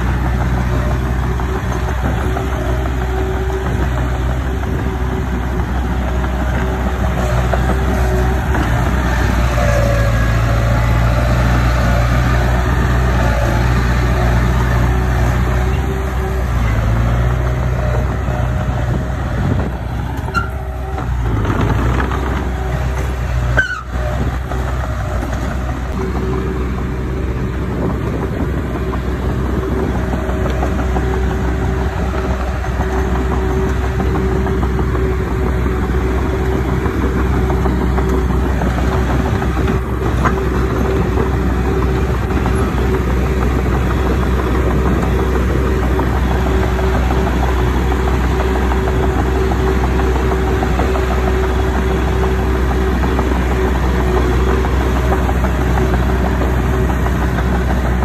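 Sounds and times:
diesel machinery engine droning: 0:00.0 - 0:58.0.

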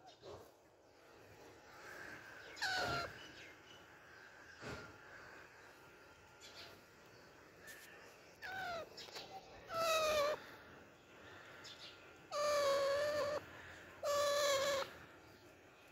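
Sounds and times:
parakeet calling: 0:01.7 - 0:03.6, 0:08.4 - 0:10.6, 0:11.2 - 0:15.4.

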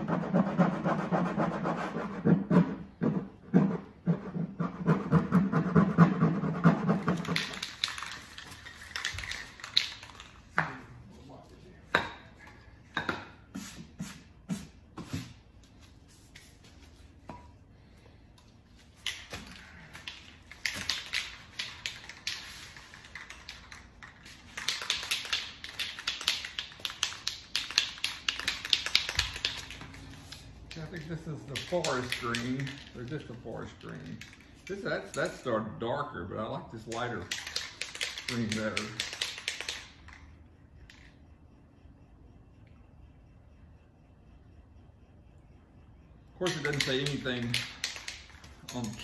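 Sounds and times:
spray can rattling when shaken: 0:07.0 - 0:10.6, 0:19.0 - 0:34.7, 0:37.2 - 0:40.2, 0:46.5 - 0:49.0.

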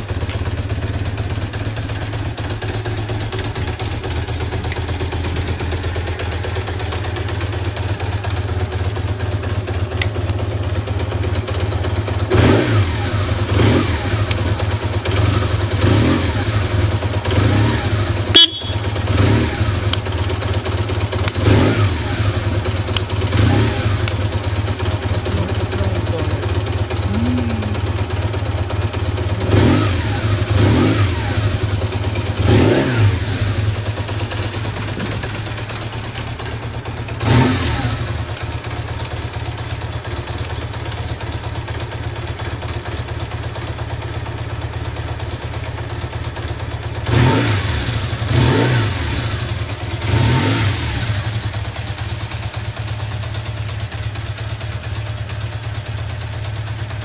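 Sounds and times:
motorcycle engine idling: 0:00.0 - 0:57.0
motorcycle throttle blips: 0:12.3 - 0:39.8.

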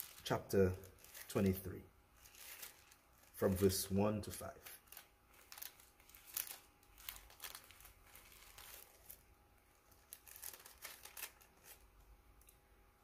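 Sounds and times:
paper pages rustling: 0:02.2 - 0:12.0.

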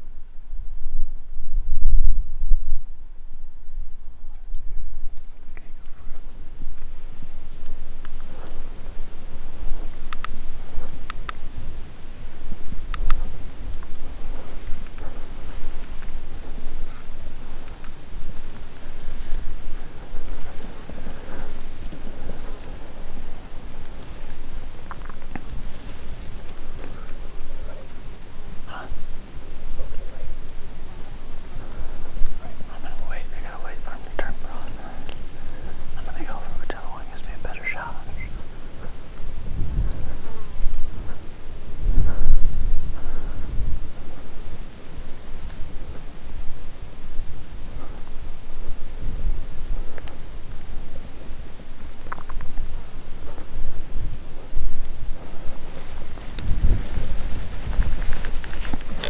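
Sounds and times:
insects trilling: 0:00.0 - 0:59.0
wind buffeting microphone: 0:00.0 - 0:59.0
faint clicks: 0:04.5 - 0:06.9, 0:10.1 - 0:11.4, 0:12.9 - 0:14.0, 0:24.0 - 0:28.6, 0:34.0 - 0:37.3, 0:49.3 - 0:50.2, 0:51.8 - 0:53.5, 0:54.8 - 0:55.1.

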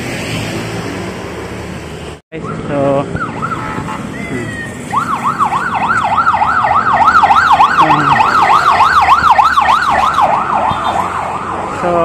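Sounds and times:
siren yelping: 0:02.4 - 0:11.8.

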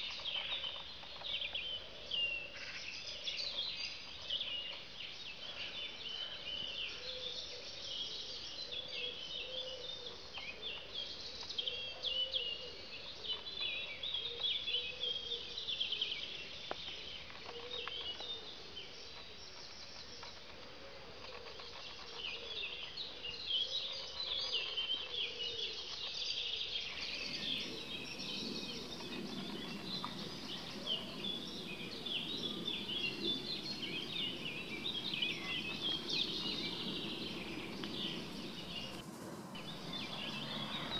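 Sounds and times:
low steady background noise: 0:00.0 - 0:40.9
birds chirping and singing: 0:26.8 - 0:40.9.

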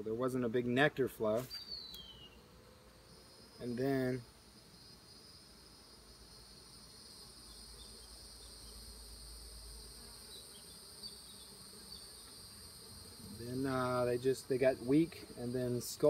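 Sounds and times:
man talking: 0:00.0 - 0:01.5, 0:03.6 - 0:04.2, 0:13.3 - 0:16.0
honeybees buzzing: 0:00.3 - 0:16.0.

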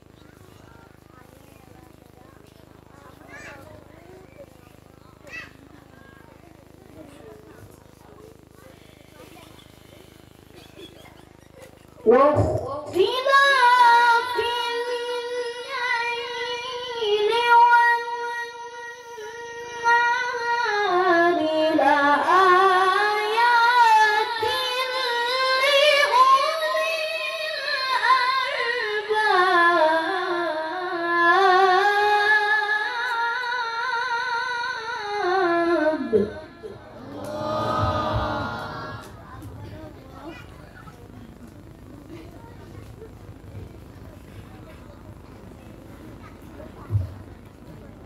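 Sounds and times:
child chanting recitation: 0:12.4 - 0:40.9.

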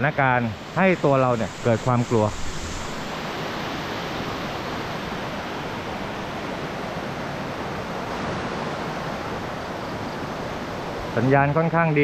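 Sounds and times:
waterfall rushing: 0:00.0 - 0:06.6.

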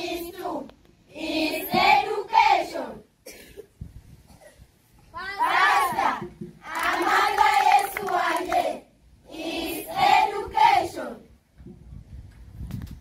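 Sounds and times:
children singing in unison: 0:00.0 - 0:03.0, 0:05.2 - 0:08.7, 0:09.3 - 0:11.2.

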